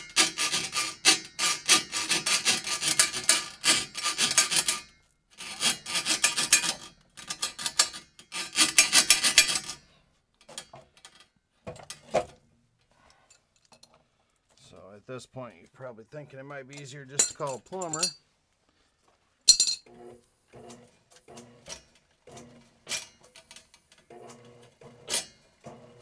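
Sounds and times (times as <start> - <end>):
drain auger cable rasping: 0.0 - 9.8, 19.9 - 26.0.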